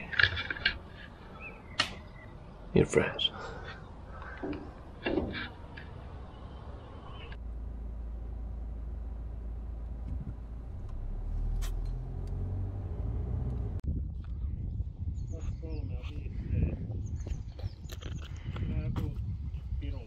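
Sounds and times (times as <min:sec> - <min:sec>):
faint outdoor background: 0:00.0 - 0:20.0
car road and engine rumble: 0:03.3 - 0:14.2.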